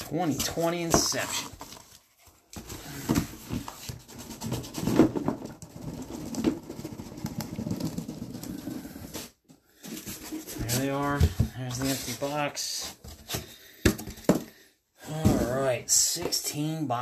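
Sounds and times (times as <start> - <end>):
cardboard scraping and rubbing: 0.0 - 13.6.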